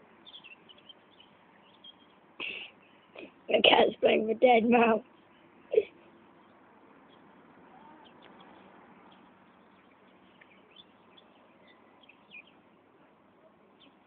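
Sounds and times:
high bird chirps: 0:07.9 - 0:12.6.

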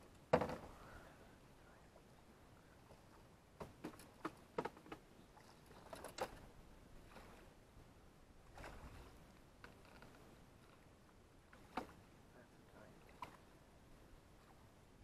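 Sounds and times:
soft wash of water: 0:05.2 - 0:15.0
knocks and splashes of thrashing fish: 0:08.5 - 0:10.8, 0:11.5 - 0:12.1.

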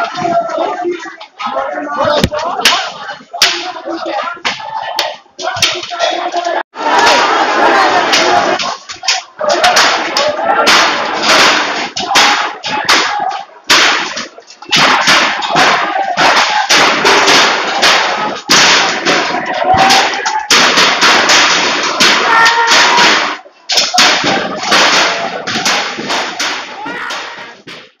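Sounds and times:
people shouting: 0:00.0 - 0:28.0
sticks striking things: 0:02.1 - 0:03.8, 0:08.0 - 0:28.0.

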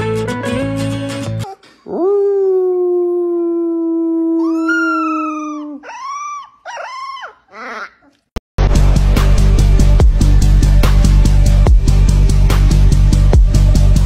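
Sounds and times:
man howling: 0:01.9 - 0:07.9
puppy howling: 0:01.9 - 0:08.2
puppy yelping: 0:04.4 - 0:08.3.

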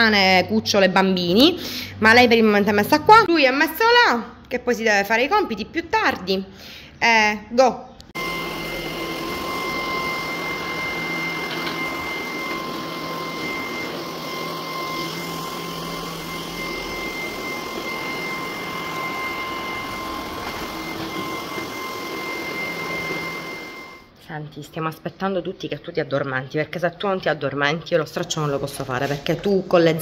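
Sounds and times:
vacuum cleaner running: 0:08.2 - 0:24.1.

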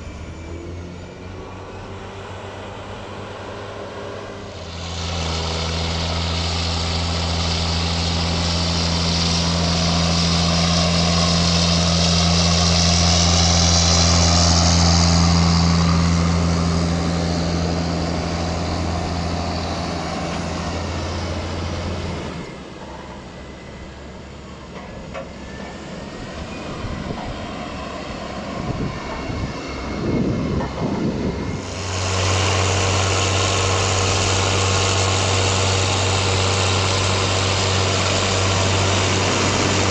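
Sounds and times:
diesel farm machinery engine hum: 0:00.0 - 0:39.9
uneven low rumbling: 0:26.2 - 0:39.9.

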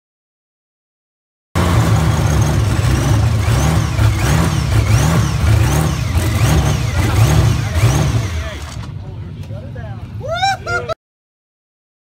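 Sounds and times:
engine revving up and down: 0:01.6 - 0:08.9.

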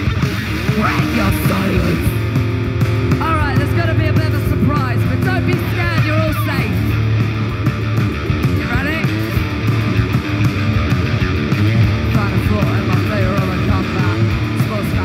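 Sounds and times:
bass guitar: 0:00.0 - 0:15.0
distorted electric guitars: 0:00.0 - 0:15.0
drum kit pounding: 0:00.0 - 0:15.0
person singing: 0:00.6 - 0:02.2.

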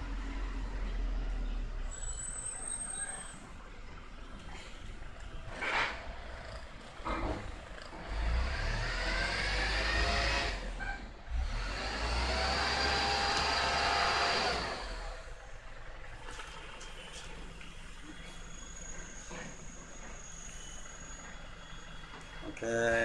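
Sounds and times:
passing vehicle engine: 0:05.4 - 0:20.1.

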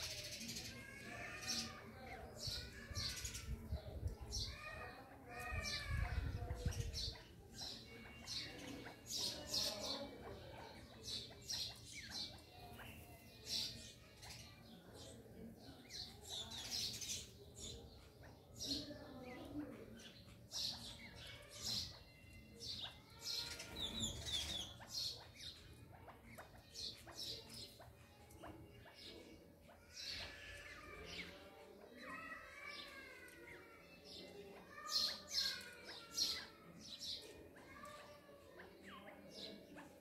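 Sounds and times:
partridge chicks peeping: 0:00.0 - 0:14.5.

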